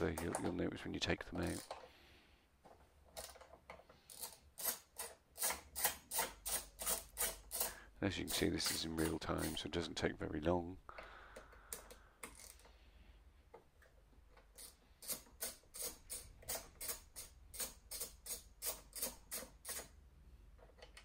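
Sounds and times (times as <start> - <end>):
hand ratchet clicking: 4.1 - 9.6, 11.4 - 12.7, 14.6 - 19.9.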